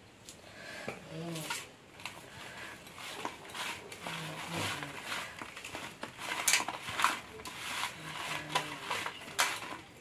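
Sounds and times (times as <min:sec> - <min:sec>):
vegetable slices scraping on metal plate: 0:02.5 - 0:09.8.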